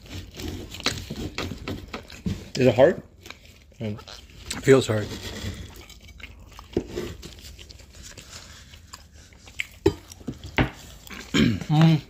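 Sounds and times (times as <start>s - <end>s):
knife sawing through crisp pastry: 0.0s - 1.6s, 3.3s - 9.6s
crunchy biting and chewing: 0.0s - 12.0s.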